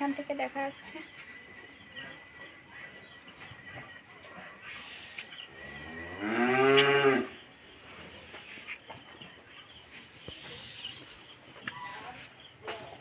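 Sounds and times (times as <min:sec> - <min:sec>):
cow mooing: 0:05.7 - 0:07.4.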